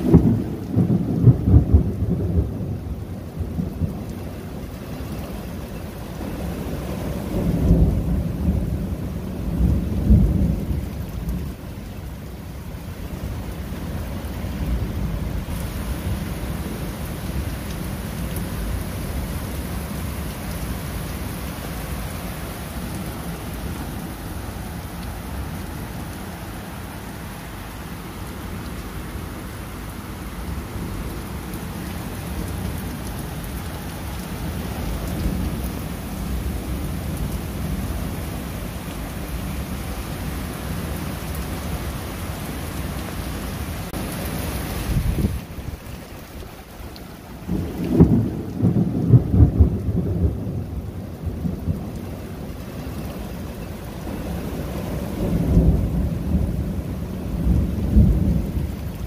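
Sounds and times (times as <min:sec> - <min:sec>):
thunder rumbling: 0:00.0 - 0:04.8, 0:05.5 - 0:11.7, 0:30.3 - 0:38.4, 0:43.9 - 0:59.0
steady rain: 0:00.0 - 0:59.0.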